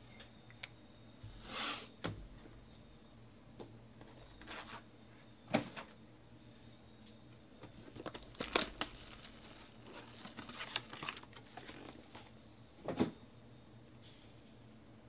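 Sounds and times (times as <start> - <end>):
foil pack crinkling: 7.8 - 12.3.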